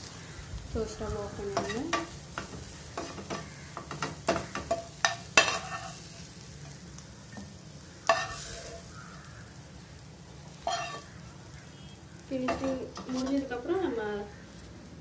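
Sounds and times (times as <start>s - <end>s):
spoon scraping a frying pan: 1.5s - 9.0s, 10.5s - 11.2s, 12.4s - 13.6s.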